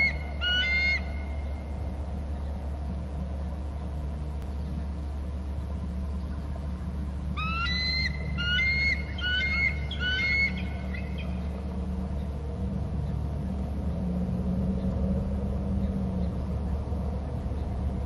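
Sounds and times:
eagle high piping calls: 0.0s - 1.5s, 7.4s - 11.4s
steady low rumble: 0.0s - 18.0s.

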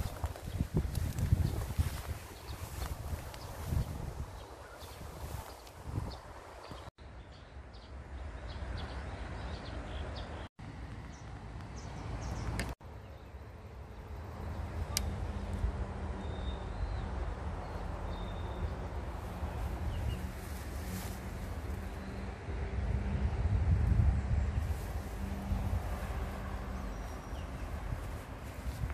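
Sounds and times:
wind on microphone: 0.0s - 6.9s, 18.4s - 28.9s.

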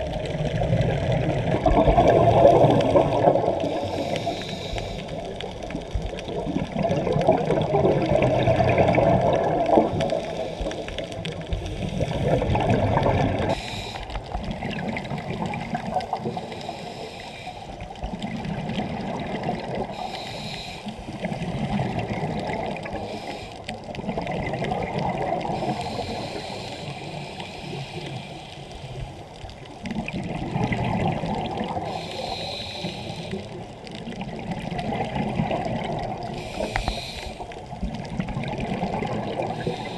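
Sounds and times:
bubbles gurgling: 0.0s - 4.4s, 5.0s - 13.6s, 14.2s - 16.5s, 17.8s - 20.1s, 21.0s - 26.4s, 29.6s - 32.5s, 33.2s - 39.9s
diver breathing through regulator: 2.4s - 5.4s, 10.1s - 12.7s, 13.4s - 14.4s, 16.1s - 18.0s, 19.8s - 22.0s, 22.7s - 23.9s, 25.4s - 29.3s, 31.7s - 33.6s, 36.1s - 38.0s, 39.3s - 39.9s.

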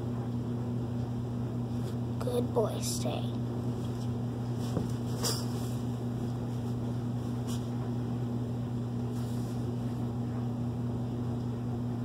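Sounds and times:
low machine hum: 0.0s - 12.0s.

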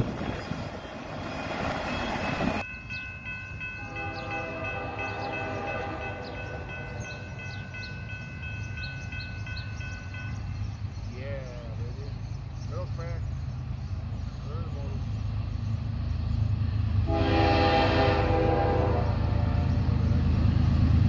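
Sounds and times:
birds chirping: 0.0s - 16.9s
freight train rumbling by: 0.0s - 21.0s
distant locomotive horn: 3.7s - 7.4s, 17.0s - 20.2s.

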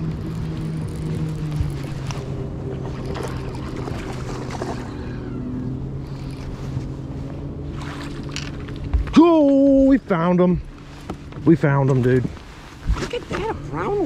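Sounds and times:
boat motor humming: 0.0s - 14.0s
fish splashing in water: 2.8s - 5.4s.

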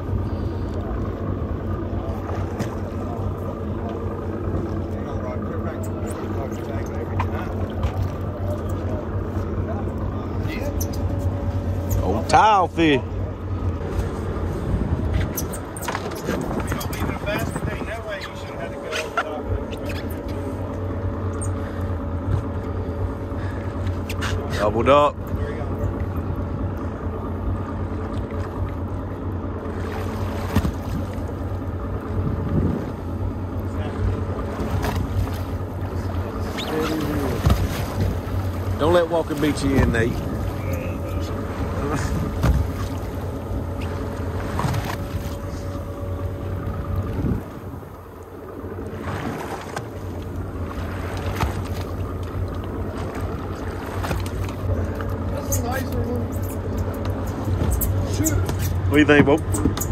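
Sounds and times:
boat engine idling: 0.0s - 59.9s
wind buffeting microphone: 13.8s - 18.8s, 31.9s - 33.3s, 44.4s - 48.2s.

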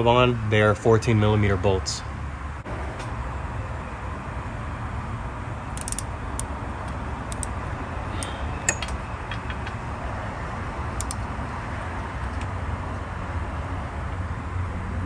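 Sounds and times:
ratchet clicking: 5.7s - 9.8s, 11.0s - 11.2s.

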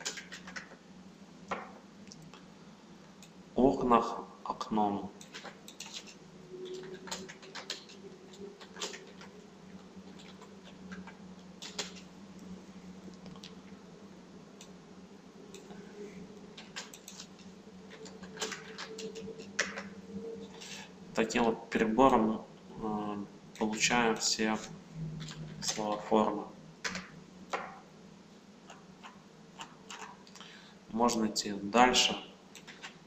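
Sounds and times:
keyboard typing: 0.0s - 0.8s, 5.2s - 12.2s, 16.6s - 19.9s, 32.5s - 33.0s
faint steady hum: 0.0s - 33.0s.

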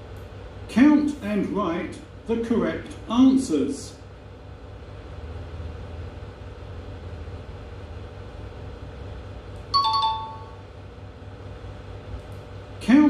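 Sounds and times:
low steady hum: 0.0s - 13.0s
two-note descending chime: 9.8s - 10.6s.

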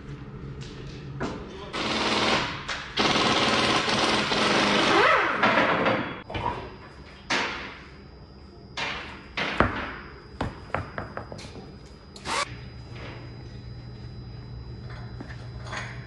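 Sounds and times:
pneumatic impact wrench hammering: 1.8s - 6.2s, 12.2s - 12.6s.

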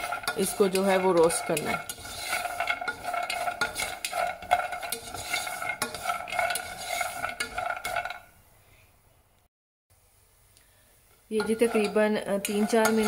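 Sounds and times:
almonds stirred with spatula in pan: 0.0s - 8.4s, 11.2s - 13.0s.

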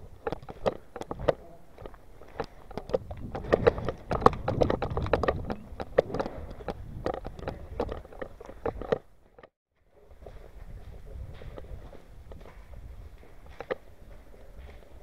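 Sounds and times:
footsteps on gravel: 0.0s - 9.4s
gear knocking and rustling: 0.0s - 9.5s
sharp clicks: 0.1s - 9.5s.

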